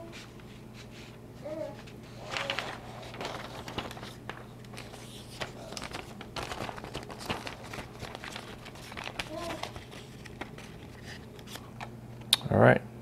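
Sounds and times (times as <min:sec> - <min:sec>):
plastic and paper crinkling: 0:01.6 - 0:11.9.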